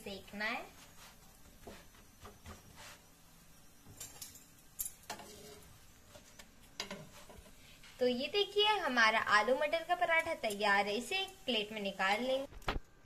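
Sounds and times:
spatula scraping a griddle: 0.8s - 3.1s, 5.0s - 8.0s.

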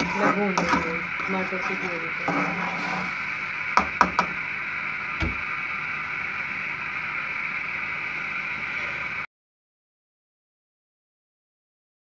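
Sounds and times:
tomato puree sizzling in a pan: 0.0s - 9.2s.

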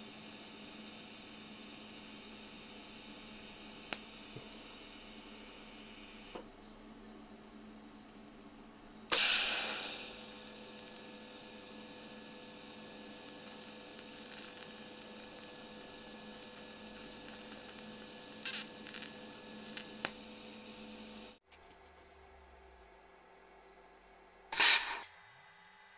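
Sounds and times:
electrical hum of welding arc: 0.0s - 6.6s, 9.0s - 21.4s, 24.5s - 25.9s
arc crackles: 2.3s - 6.4s, 9.1s - 21.4s
welding arc striking: 9.1s - 21.4s, 24.5s - 25.1s.

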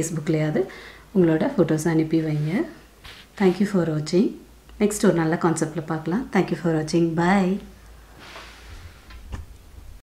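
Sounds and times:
low steady hum: 0.0s - 10.0s
soft rustle: 1.9s - 3.9s, 8.1s - 9.3s.

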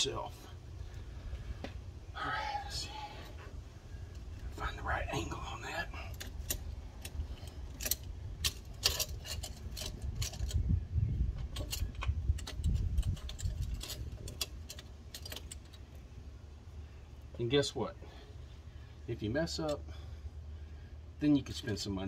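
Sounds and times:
low uneven rumble: 0.0s - 22.0s
metallic clicks and clinks: 6.1s - 10.6s, 11.4s - 15.9s.

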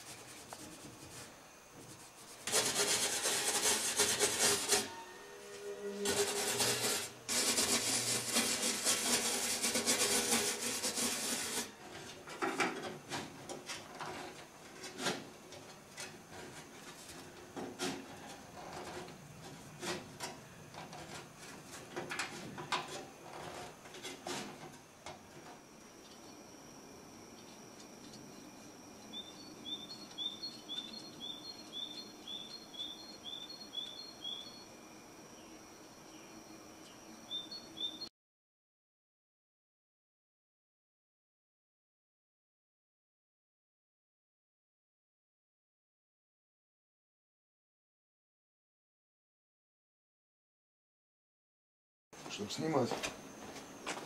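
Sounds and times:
block rasping over copper sheet: 0.0s - 5.0s, 5.6s - 15.3s, 15.9s - 24.8s
faint high whine: 4.5s - 8.6s, 22.4s - 38.1s
bird chirping: 27.4s - 34.7s, 35.4s - 38.1s.

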